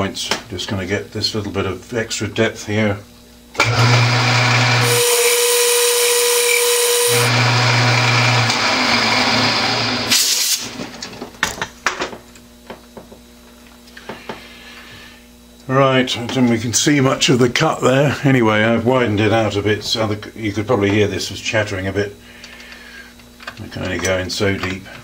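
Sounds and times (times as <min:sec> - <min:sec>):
lathe hum: 0:03.6 - 0:10.1
lathe tool cutting metal: 0:03.6 - 0:10.2.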